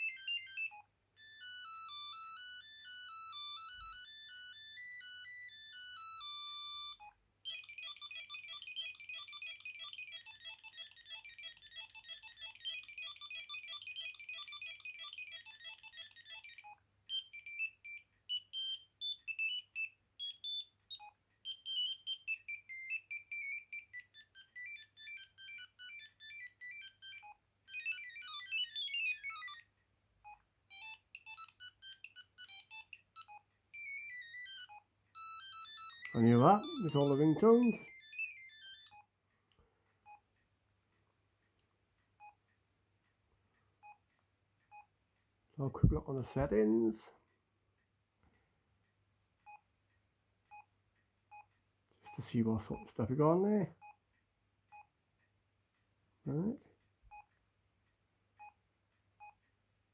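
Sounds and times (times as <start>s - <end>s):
mobile phone ringtones: 0.0s - 29.7s, 30.3s - 39.1s.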